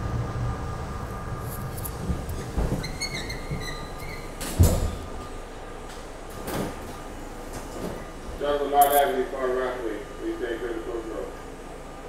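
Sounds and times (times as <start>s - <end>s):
train equipment hum: 0.0s - 12.0s
sliding doors banging shut: 1.8s - 8.3s.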